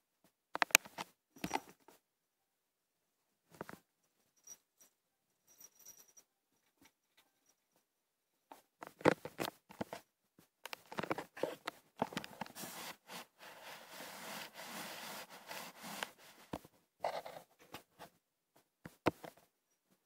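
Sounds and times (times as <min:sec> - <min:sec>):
knocks and scrapes on camera: 0:08.8 - 0:10.0, 0:10.7 - 0:18.1, 0:18.9 - 0:19.5
fur rubbing against microphone: 0:12.4 - 0:16.5.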